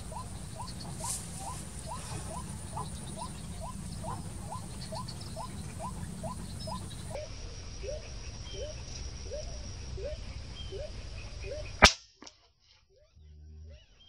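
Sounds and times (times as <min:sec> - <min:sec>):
waterhen calling: 0:00.0 - 0:07.2.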